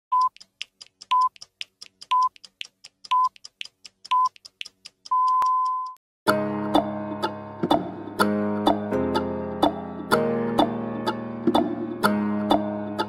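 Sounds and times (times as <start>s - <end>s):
rapid ticking and crackle: 0.2s - 5.1s
short high beeps: 5.1s - 6.0s.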